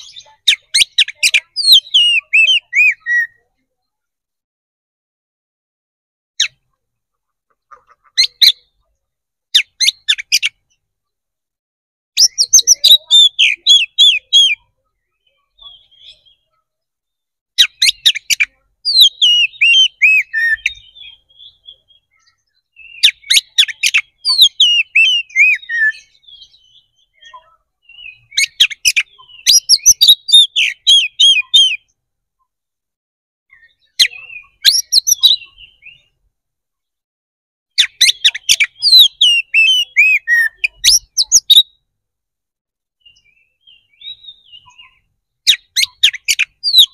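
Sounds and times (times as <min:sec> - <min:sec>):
bird singing whistles and trills: 0:00.0 - 0:03.5, 0:09.5 - 0:10.8, 0:12.2 - 0:32.0, 0:33.5 - 0:36.3, 0:37.8 - 0:41.9, 0:43.0 - 0:46.9.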